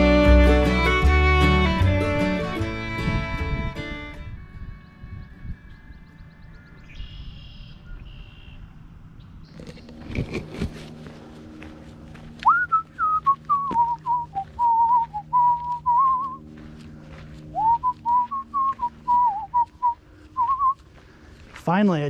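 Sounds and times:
person whistling a tune: 12.4 - 16.4, 17.5 - 20.8.

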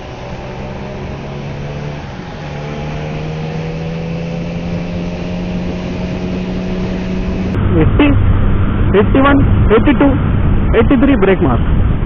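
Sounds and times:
motorcycle engine accelerating: 0.0 - 10.8
wind and road rush: 0.0 - 12.0.

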